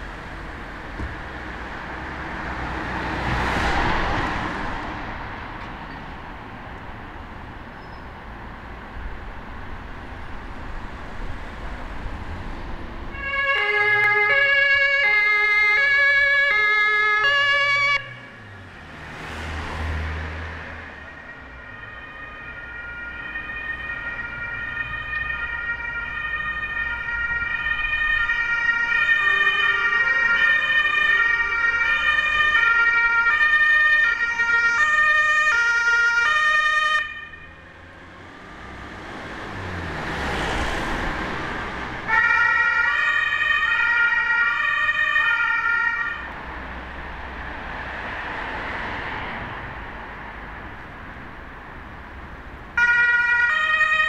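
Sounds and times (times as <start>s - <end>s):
vehicles passing: 0.0s - 54.0s
two-tone siren: 13.1s - 18.5s, 20.8s - 37.8s, 42.1s - 46.3s, 52.8s - 54.0s.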